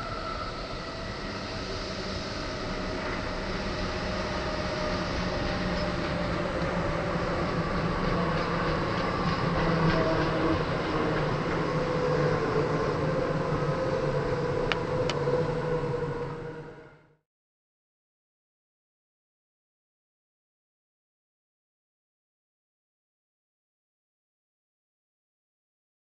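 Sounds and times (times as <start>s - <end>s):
train wheels humming on rails: 0.0s - 17.2s.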